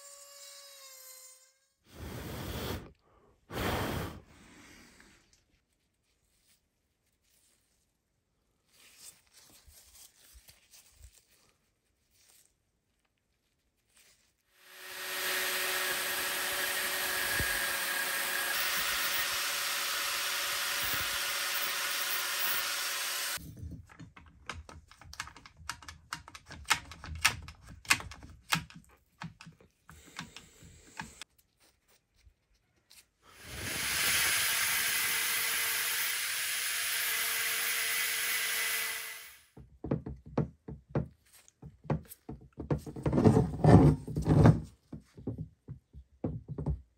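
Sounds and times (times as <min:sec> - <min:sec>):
angle grinder whine on metal: 0:14.6 - 0:23.4.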